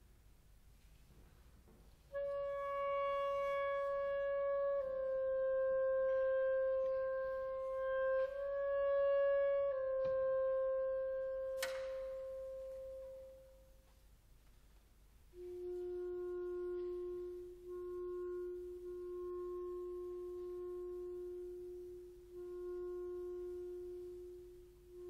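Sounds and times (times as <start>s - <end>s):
clarinet playing held notes: 2.0s - 13.9s, 15.3s - 25.0s
sharp click: 11.6s - 12.1s.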